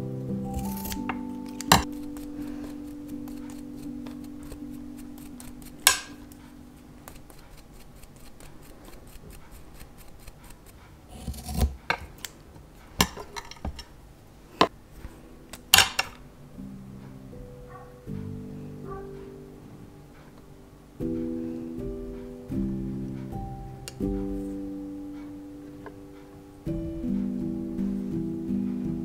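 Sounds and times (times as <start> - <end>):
soft background music: 0.0 - 8.1, 14.7 - 29.0
small scissors snipping: 0.5 - 6.4.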